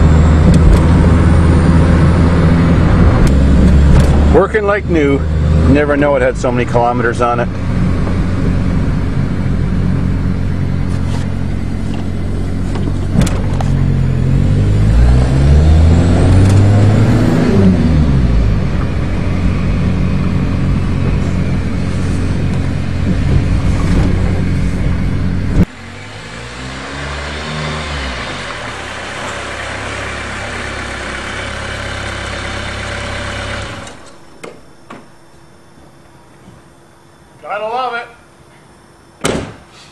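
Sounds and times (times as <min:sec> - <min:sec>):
diesel engine running in cabin: 0:00.0 - 0:34.4.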